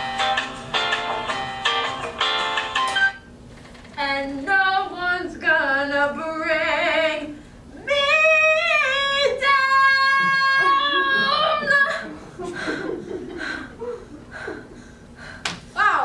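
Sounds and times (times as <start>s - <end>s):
girl singing with vibrato: 4.0s - 12.1s.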